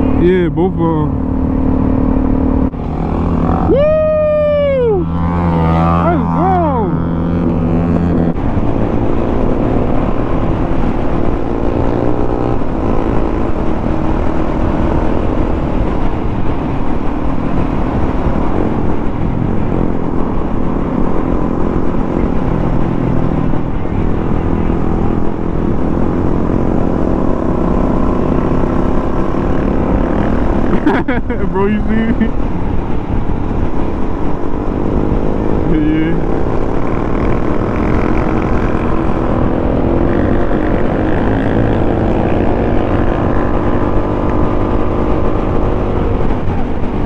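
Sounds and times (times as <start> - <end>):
motorcycle engine running: 0.0 - 47.0
wind rush on microphone: 0.0 - 47.0.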